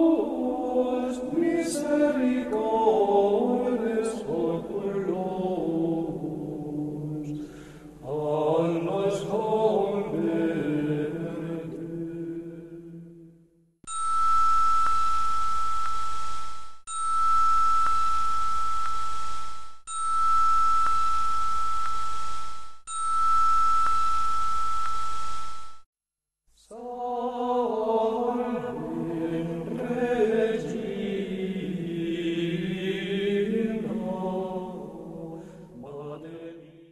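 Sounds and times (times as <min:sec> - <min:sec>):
gregorian chant singing: 0:00.0 - 0:07.4, 0:08.0 - 0:13.3, 0:26.6 - 0:36.9
high steady electronic tone: 0:13.9 - 0:25.8.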